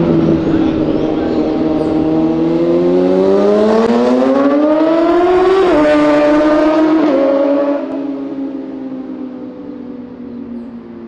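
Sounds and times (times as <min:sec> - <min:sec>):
motorcycle riding away: 0:00.0 - 0:11.0.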